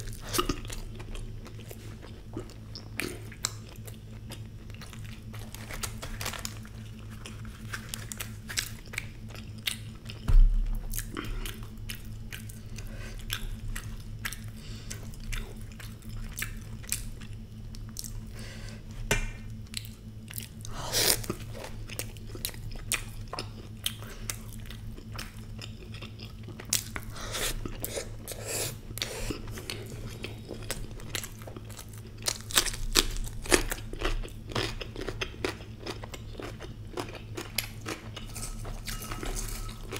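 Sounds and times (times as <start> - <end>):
steady low hum: 0.0 - 39.9
wet chewing and mouth smacks: 7.0 - 18.2
loud dull thump: 10.3 - 10.8
crunchy bites of fried snack: 30.6 - 39.9.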